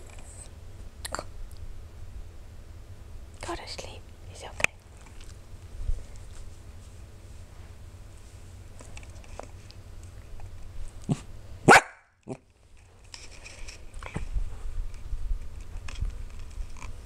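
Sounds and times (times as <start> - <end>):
puppy barking: 11.1 - 12.4
puppy yipping: 11.7 - 12.0.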